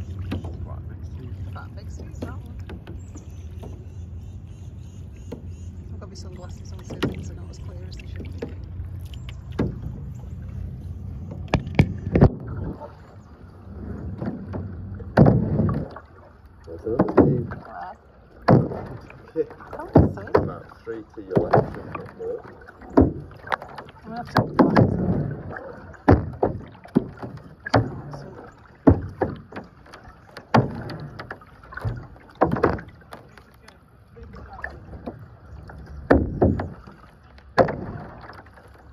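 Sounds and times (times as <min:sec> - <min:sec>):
low rumble of water and wind: 0:00.0 - 0:38.9
sharp knocks on kayak: 0:09.5 - 0:10.1, 0:11.2 - 0:12.8, 0:14.0 - 0:16.0, 0:16.8 - 0:17.6, 0:18.4 - 0:20.7, 0:21.3 - 0:22.1, 0:22.8 - 0:28.2, 0:28.8 - 0:33.5, 0:36.0 - 0:38.5.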